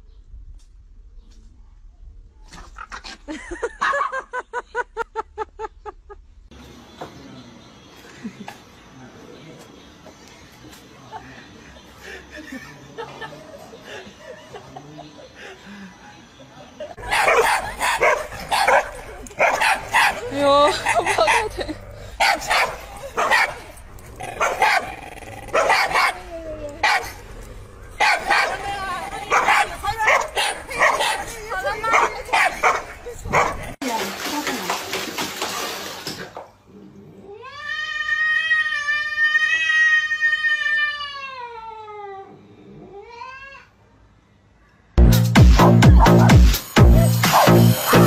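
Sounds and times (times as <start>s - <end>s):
dog barking: 17.0s - 21.6s, 22.2s - 23.6s, 24.4s - 24.9s, 25.5s - 26.2s, 26.8s - 27.2s, 28.0s - 28.6s, 29.3s - 31.3s, 31.9s - 33.6s
cat yowling: 37.3s - 43.7s.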